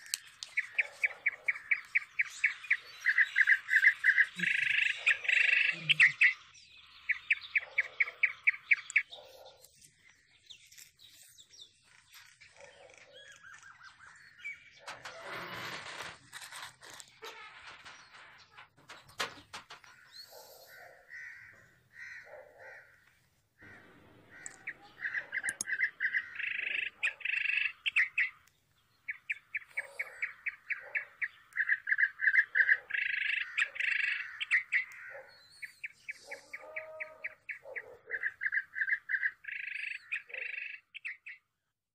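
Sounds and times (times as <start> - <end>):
bird chirping in rapid trills: 0.0 - 9.4, 23.7 - 41.4.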